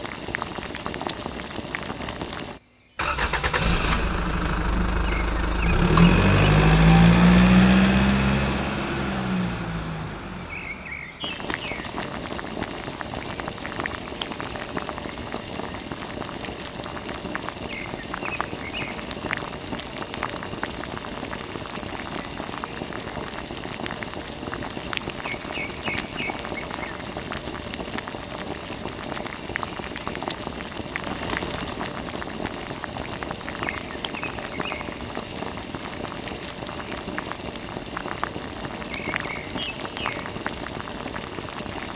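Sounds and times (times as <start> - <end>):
engine-like hum falling pitch: 3.6 - 12.0.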